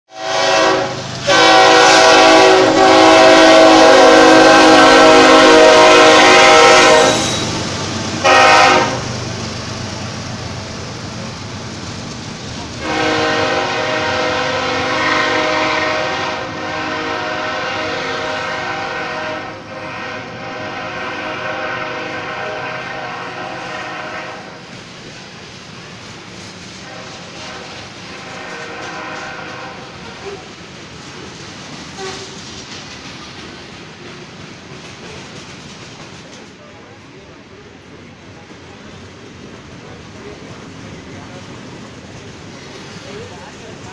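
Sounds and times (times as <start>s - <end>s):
locomotive air horn blasts: 0.1s - 7.4s, 8.2s - 9.0s, 12.8s - 24.6s, 26.8s - 30.3s, 32.0s - 32.4s.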